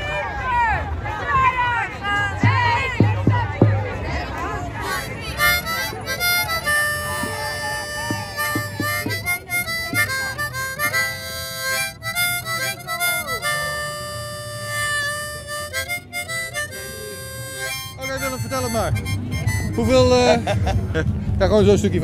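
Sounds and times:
harmonica playing chords: 0:04.8 - 0:20.8.

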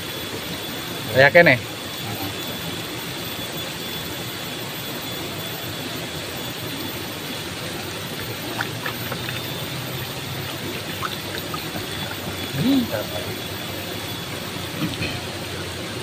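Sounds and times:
river water rushing: 0:07.4 - 0:15.7.

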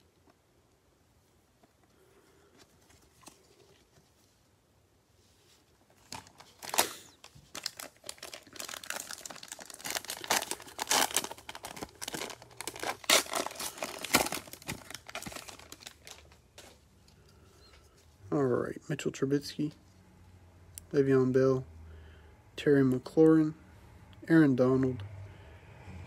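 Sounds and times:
plastic wrapper crinkling and tearing: 0:06.0 - 0:16.8.

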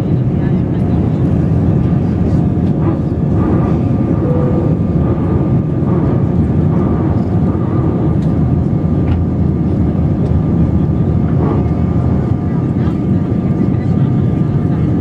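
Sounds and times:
jet engine rumble in cabin: 0:00.0 - 0:15.0
faint steady whine: 0:02.8 - 0:08.1.

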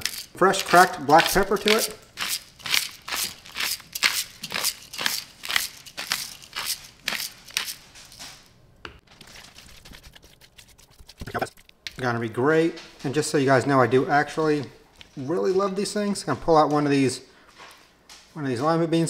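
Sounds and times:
pepper mill grinding: 0:00.0 - 0:07.8.

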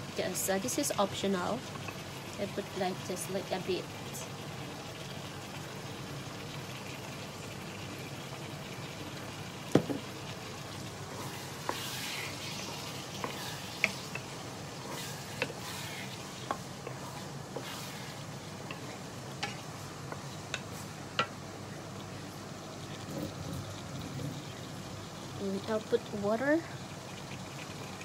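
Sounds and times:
tofu sizzling in a pan: 0:00.0 - 0:28.0.

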